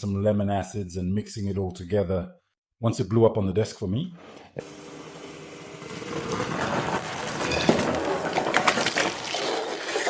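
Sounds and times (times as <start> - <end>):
liquid fizzing and foaming: 6.2 - 10.0
liquid pouring into metal canister: 6.4 - 10.0.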